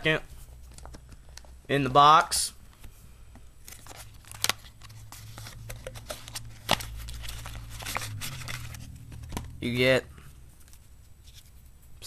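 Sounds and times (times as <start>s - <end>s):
cardboard and plastic rustling: 3.6s - 9.6s.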